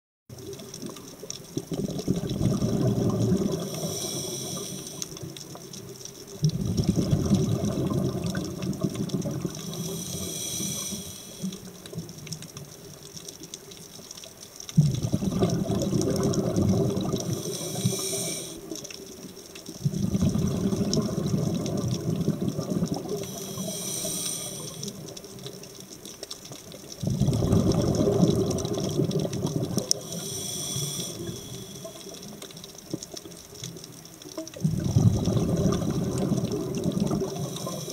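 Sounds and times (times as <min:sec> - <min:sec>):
exhaled bubbles underwater: 0:00.3 - 0:37.9
regulator hiss: 0:03.5 - 0:05.4, 0:09.5 - 0:11.8, 0:17.1 - 0:18.9, 0:23.0 - 0:25.4, 0:29.9 - 0:32.7, 0:37.0 - 0:37.9.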